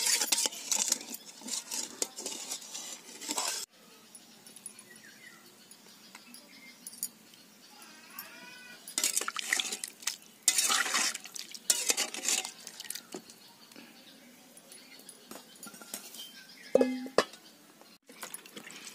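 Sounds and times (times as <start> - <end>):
metal spatula scraping pot: 0.0 - 3.7, 8.9 - 13.3.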